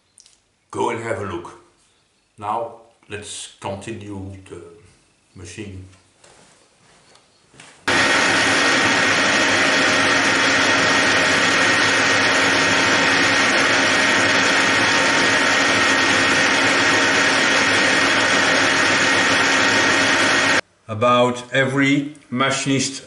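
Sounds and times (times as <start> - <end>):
metal lathe machining: 7.9 - 20.6.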